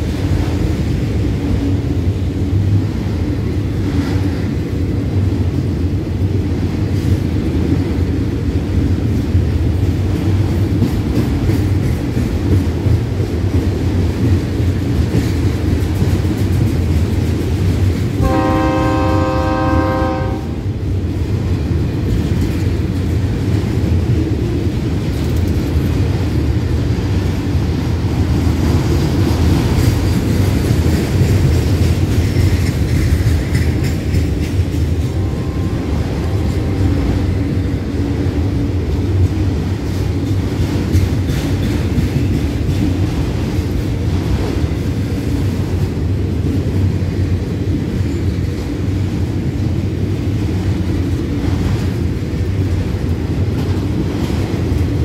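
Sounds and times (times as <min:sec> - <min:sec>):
steel wheels rolling on rails: 0:00.0 - 0:55.0
train horn chord: 0:18.2 - 0:20.6, 0:35.0 - 0:37.1.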